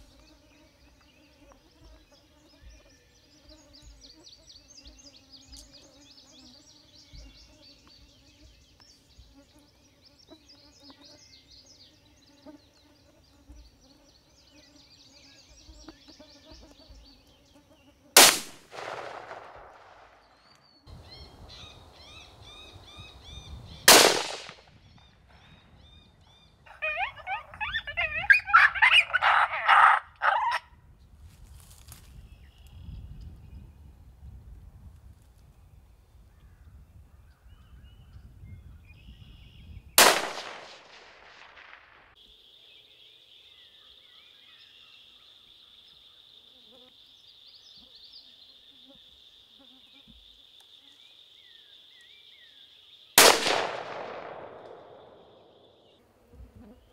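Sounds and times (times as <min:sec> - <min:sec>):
faint bird chirping: 0:00.0 - 0:18.0, 0:20.1 - 0:23.9, 0:24.7 - 0:34.5, 0:35.5 - 0:40.0, 0:42.2 - 0:53.2
gunshots: 0:18.2 - 0:20.2, 0:23.9 - 0:24.7, 0:40.0 - 0:42.1, 0:53.2 - 0:55.5
insect chirping: 0:18.8 - 0:30.6, 0:42.1 - 0:53.2, 0:53.9 - 0:56.0
coyotes yipping and howling: 0:26.5 - 0:30.8.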